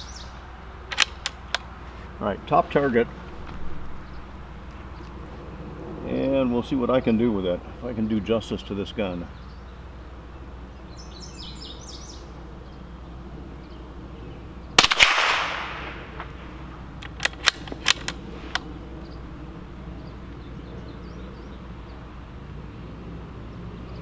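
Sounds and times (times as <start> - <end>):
rifle bolt metallic clicks: 0.9 - 1.7, 17.0 - 18.7
rifle shot with echo: 14.8 - 16.4.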